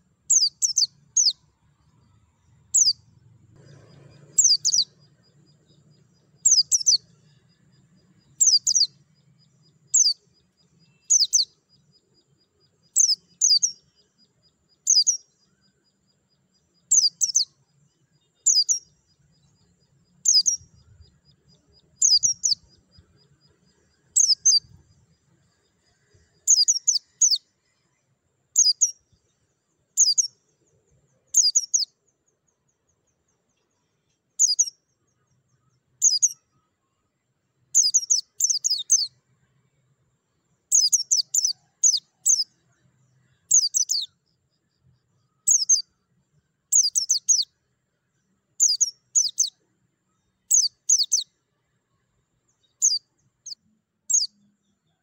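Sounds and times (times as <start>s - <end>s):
bird high chirps: 0.0s - 15.8s, 16.8s - 17.6s, 18.2s - 27.5s, 28.5s - 29.2s, 30.0s - 30.4s, 31.3s - 32.0s, 34.4s - 36.6s, 37.7s - 39.2s, 40.7s - 42.6s, 43.2s - 44.2s, 45.3s - 46.0s, 46.7s - 47.6s, 48.6s - 49.6s, 50.5s - 51.3s, 52.5s - 54.5s.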